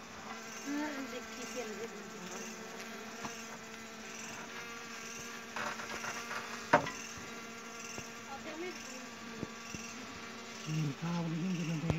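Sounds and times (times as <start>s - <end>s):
honey bees buzzing: 0.0s - 11.9s
scraping rustle: 5.4s - 6.8s.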